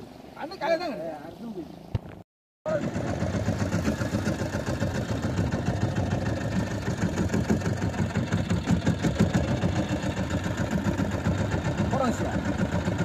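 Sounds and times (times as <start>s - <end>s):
boat engine pulsing rumble: 2.7s - 13.0s.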